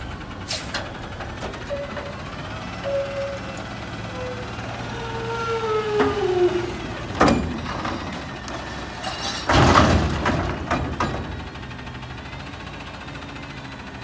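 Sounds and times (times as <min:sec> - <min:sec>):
hydraulic whine: 0:02.8 - 0:07.8.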